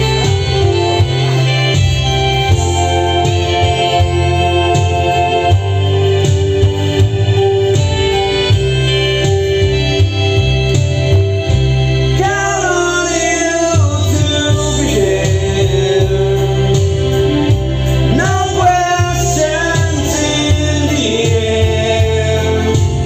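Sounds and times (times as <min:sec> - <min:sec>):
karaoke backing track: 0:00.0 - 0:23.0
man singing into a microphone: 0:12.2 - 0:23.0.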